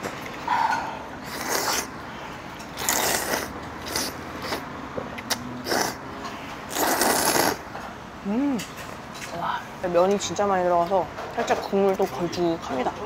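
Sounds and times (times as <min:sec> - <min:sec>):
person slurping noodles: 0:00.7 - 0:01.9, 0:02.8 - 0:04.6, 0:05.6 - 0:06.0, 0:06.7 - 0:07.6.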